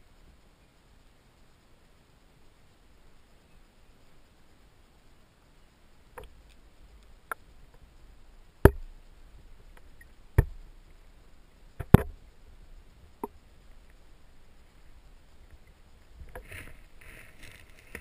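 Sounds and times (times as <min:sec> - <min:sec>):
faint low rumble: 0:00.0 - 0:18.0
sharp knocks under water: 0:08.6 - 0:08.9, 0:10.4 - 0:10.6.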